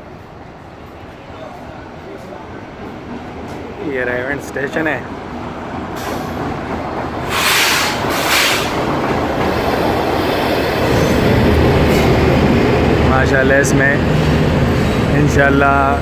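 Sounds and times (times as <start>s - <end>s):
train rolling into station: 0.0s - 16.0s
loud hissing bursts: 7.2s - 8.8s.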